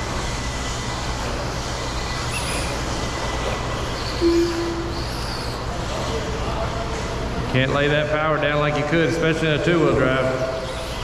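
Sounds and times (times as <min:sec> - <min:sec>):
low hum: 0:00.0 - 0:05.9
rc trucks racing on dirt: 0:00.0 - 0:06.3, 0:09.8 - 0:11.0
short single-pitched tone: 0:04.2 - 0:04.9.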